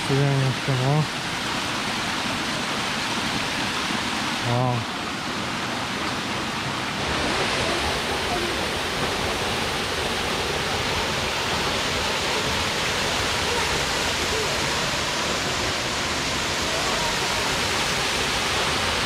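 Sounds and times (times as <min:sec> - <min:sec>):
waterfall splashing into pool: 0:00.0 - 0:19.0.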